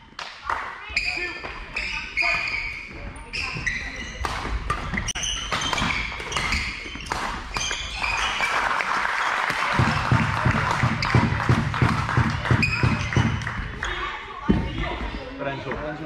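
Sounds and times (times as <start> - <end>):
shoe squeaks on court: 0.9 - 8.6, 12.5 - 14.1
crowd cheering and clapping: 7.8 - 13.8
rhythmic thumping: 9.6 - 13.8.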